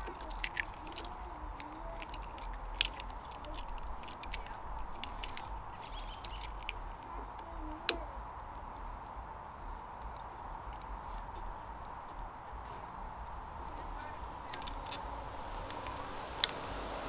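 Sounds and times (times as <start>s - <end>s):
hand tool clicking on metal: 13.6s - 16.6s.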